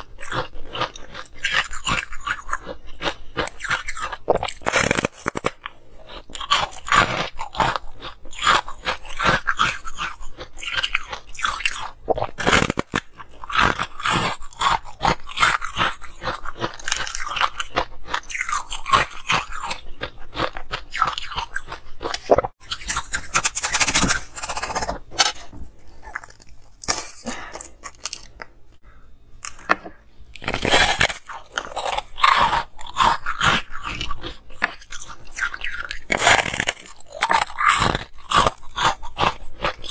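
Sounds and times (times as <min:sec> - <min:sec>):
person crunching frozen ice: 0:00.0 - 0:28.5, 0:30.3 - 0:39.9.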